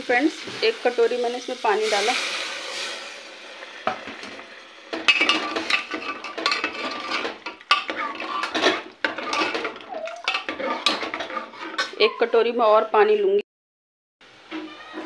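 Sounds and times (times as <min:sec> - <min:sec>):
metal ladle scraping a pot: 0:04.3 - 0:12.5.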